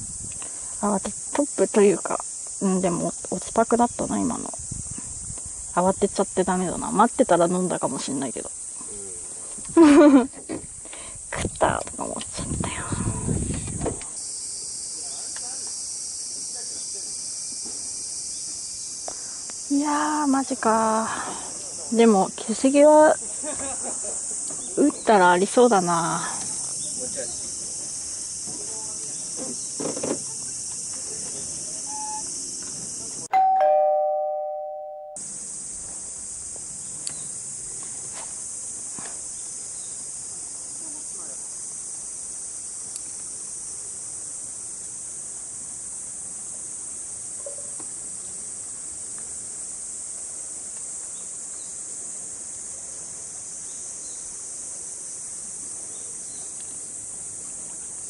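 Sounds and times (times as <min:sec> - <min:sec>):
insect chorus drone: 0:00.0 - 0:33.3, 0:35.2 - 0:58.0
two-note ding-dong chime: 0:33.3 - 0:35.2.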